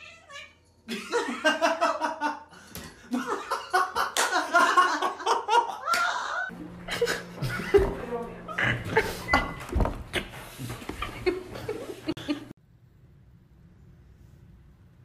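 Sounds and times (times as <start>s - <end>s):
person laughing: 3.1s - 10.3s, 11.0s - 12.5s.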